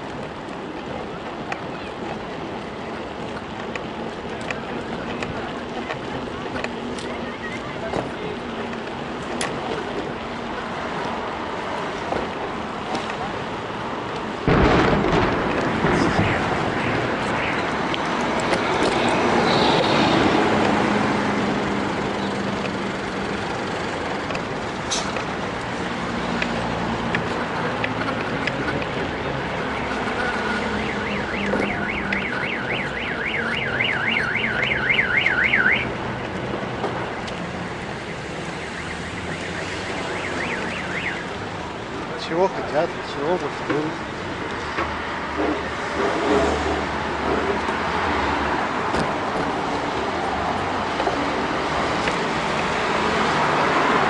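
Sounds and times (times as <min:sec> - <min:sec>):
street traffic noise: 0:00.0 - 0:54.0
car alarm siren warbling: 0:30.4 - 0:35.9, 0:38.0 - 0:41.4.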